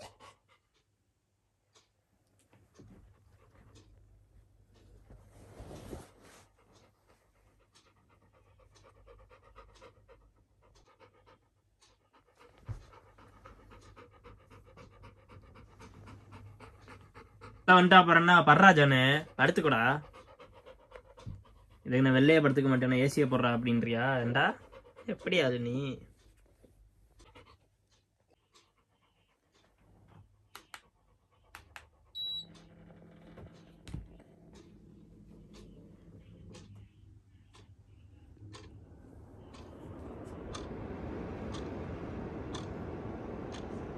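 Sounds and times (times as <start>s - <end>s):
dog panting: 0.0s - 1.1s, 2.5s - 32.4s
fan low hum: 0.0s - 43.9s
air conditioner beep: 32.1s - 43.9s.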